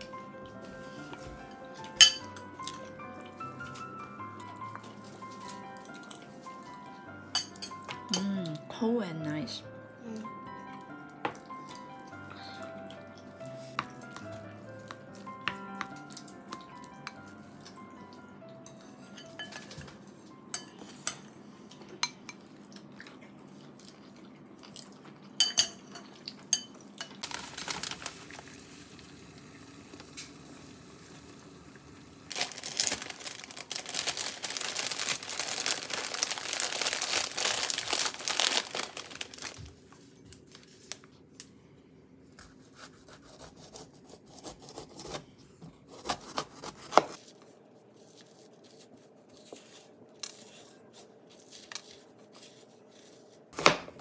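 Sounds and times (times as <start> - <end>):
spoon clinking ceramic bowl: 2.0 - 2.8, 25.4 - 26.7
plastic bag crinkling: 27.2 - 28.6, 32.3 - 41.2
spoon scraping seeds: 48.0 - 53.4.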